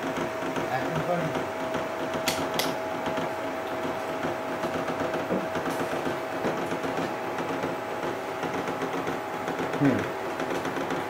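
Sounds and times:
sharp click: 0:02.2 - 0:02.8.

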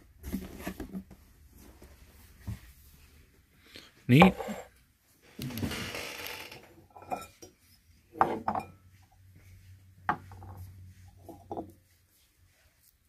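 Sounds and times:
glass and china clinking: 0:06.9 - 0:07.5, 0:08.2 - 0:08.8.

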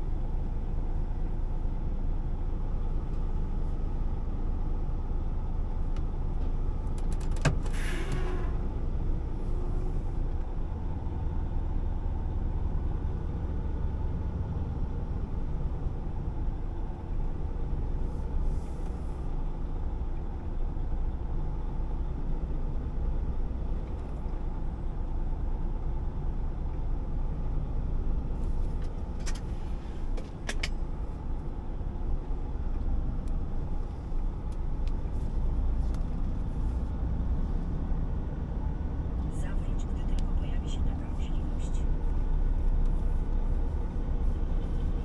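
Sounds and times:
truck engine and road noise: 0:00.0 - 0:45.0.

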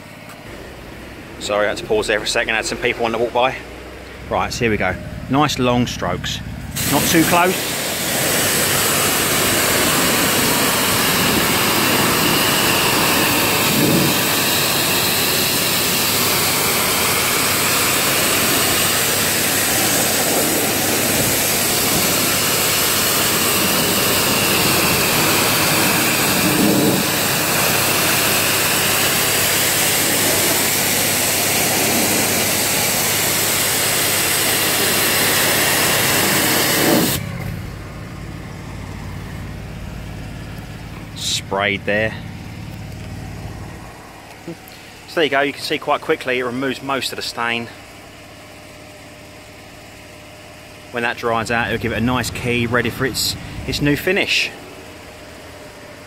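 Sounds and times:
pressure washer engine running: 0:00.0 - 0:56.0
water spray hissing on wood: 0:06.8 - 0:37.2.

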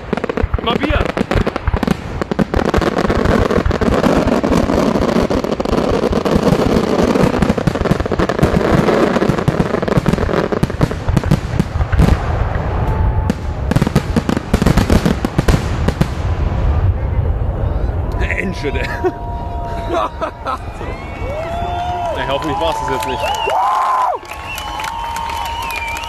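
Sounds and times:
crackle of small bangs: 0:00.0 - 0:16.8
sharp firework bangs: 0:00.0 - 0:17.1.

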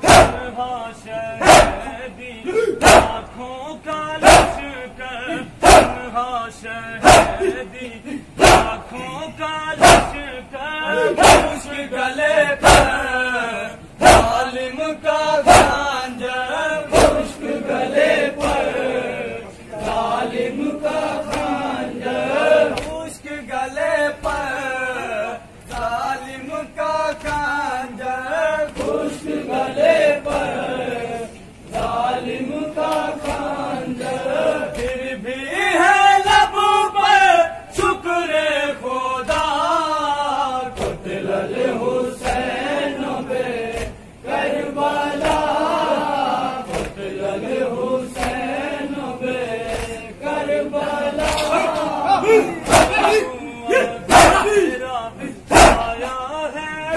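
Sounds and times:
men chanting a lament: 0:00.0 - 0:56.9
hands slapping chests: 0:11.2 - 0:11.6, 0:16.9 - 0:17.3, 0:18.4 - 0:18.7, 0:21.2 - 0:21.6, 0:22.7 - 0:23.0, 0:27.1 - 0:27.6, 0:28.7 - 0:29.1, 0:30.2 - 0:30.6, 0:32.8 - 0:35.1, 0:39.2 - 0:39.6, 0:40.7 - 0:41.0, 0:43.7 - 0:44.0, 0:45.2 - 0:45.6, 0:46.6 - 0:47.0, 0:48.2 - 0:48.5, 0:49.6 - 0:50.0, 0:51.1 - 0:52.0, 0:52.6 - 0:53.2, 0:55.5 - 0:56.2.

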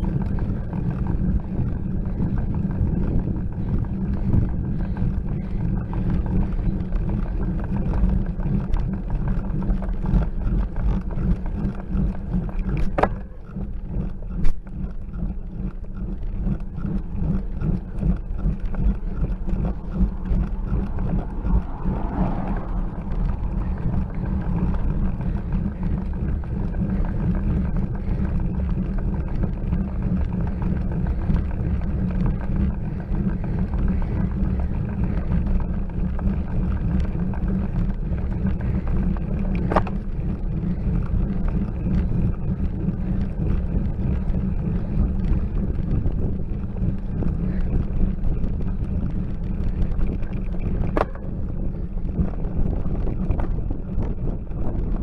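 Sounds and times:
wind and road rumble: 0:00.0 - 0:55.0.

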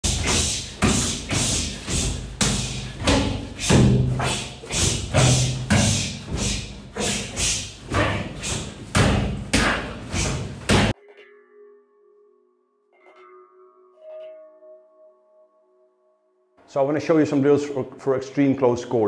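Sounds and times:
strikes thudding on training mannequin: 0:00.1 - 0:06.6, 0:08.9 - 0:10.9.

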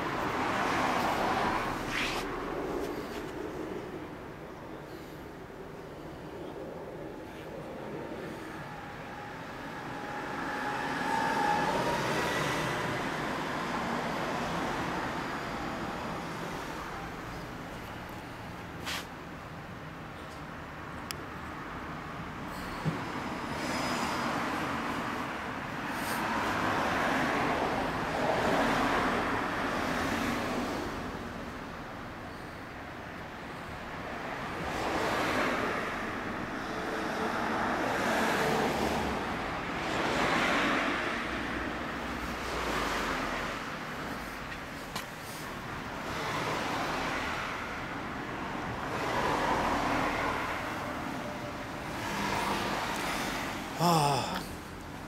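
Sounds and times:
road traffic noise: 0:00.0 - 0:55.0.

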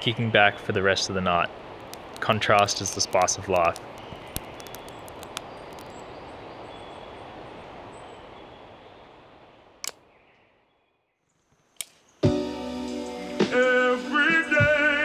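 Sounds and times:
steady hiss: 0:01.6 - 0:06.0
faint high bird calls: 0:03.9 - 0:09.2.

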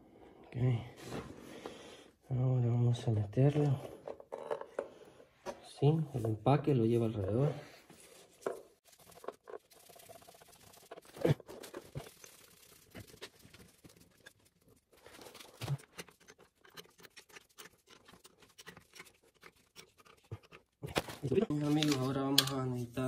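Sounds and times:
small scrapes and clicks: 0:08.4 - 0:22.6.

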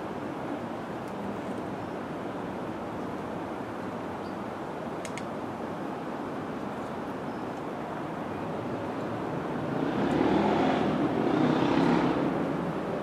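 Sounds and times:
traffic rumble: 0:00.0 - 0:13.0
vehicle passing: 0:09.6 - 0:12.6.

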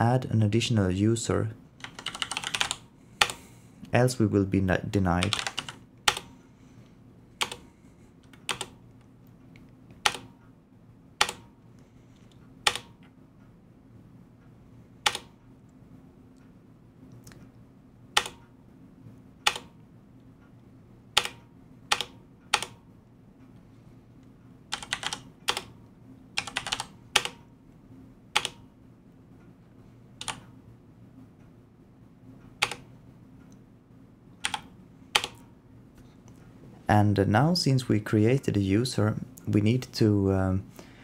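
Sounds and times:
low steady hum: 0:00.0 - 0:41.0
keyboard key presses: 0:01.8 - 0:03.4, 0:07.4 - 0:07.6, 0:26.4 - 0:27.4, 0:30.2 - 0:30.4, 0:32.6 - 0:32.8, 0:34.4 - 0:35.4
quick typing on keyboard: 0:01.8 - 0:03.4, 0:05.2 - 0:06.3, 0:24.7 - 0:25.7, 0:26.4 - 0:27.4.

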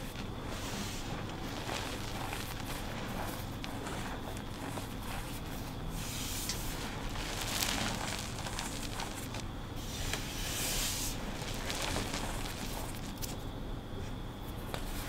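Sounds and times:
hands squeezing chalk powder: 0:00.0 - 0:13.4.

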